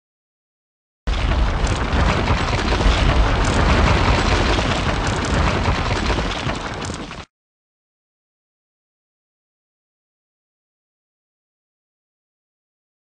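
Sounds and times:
explosion-like rumble with crackle: 1.1s - 7.3s.

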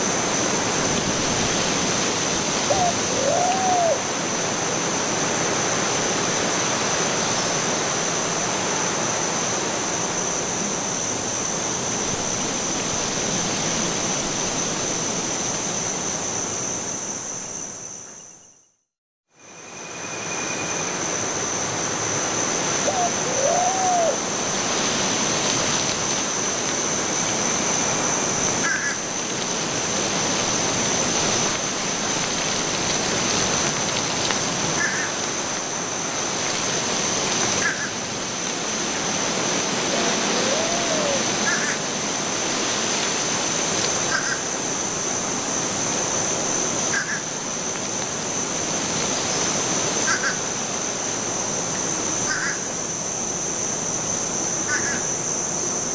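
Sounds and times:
rushing running water: 0.0s - 16.4s, 21.3s - 52.5s
low hooting calls: 2.5s - 4.2s, 22.8s - 24.3s, 39.7s - 41.9s.

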